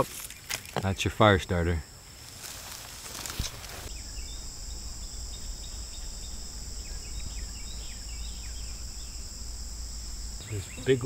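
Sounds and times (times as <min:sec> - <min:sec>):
high-pitched insect chorus: 0:00.0 - 0:11.0
brief rustle: 0:02.4 - 0:03.9
bird chirps: 0:03.9 - 0:11.0.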